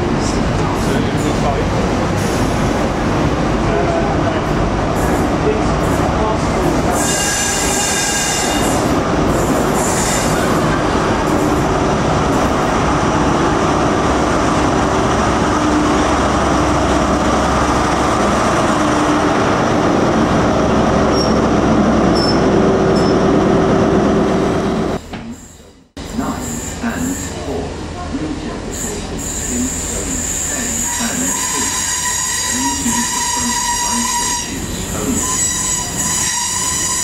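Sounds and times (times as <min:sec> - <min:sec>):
train wheels rumbling on track: 0:00.0 - 0:25.3.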